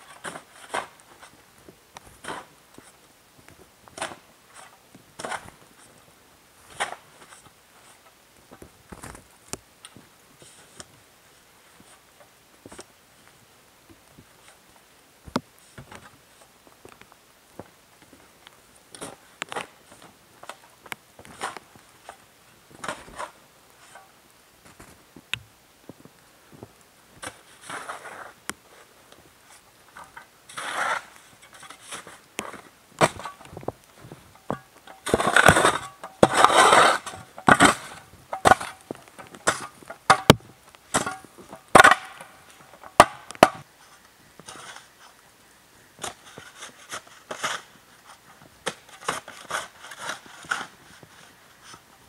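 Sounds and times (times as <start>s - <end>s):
blade scraping frozen ground: 0.0s - 1.4s, 2.1s - 3.0s, 4.0s - 6.0s, 27.2s - 45.2s, 46.0s - 51.8s
shovel crunching into snow: 27.2s - 28.9s, 30.5s - 33.4s, 34.9s - 38.8s.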